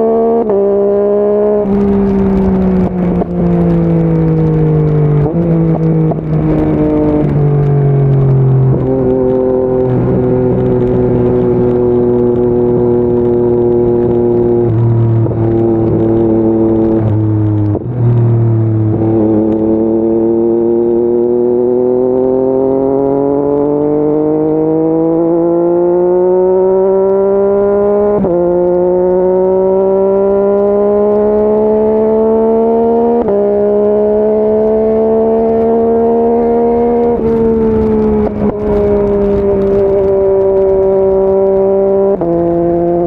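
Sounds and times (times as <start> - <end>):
motorcycle engine accelerating: 0.0 - 43.0.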